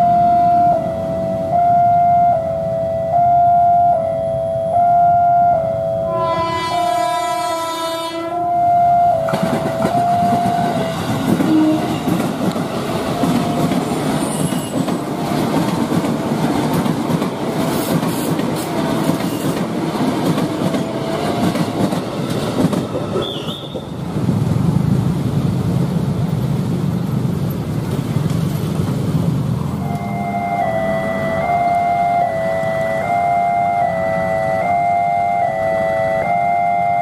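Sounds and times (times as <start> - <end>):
train horn: 0.0 - 9.3, 9.9 - 12.2, 23.2 - 24.0, 29.8 - 37.0
level crossing warning alarm: 0.0 - 14.9, 29.8 - 37.0
train wheel and rail noise: 0.0 - 37.0.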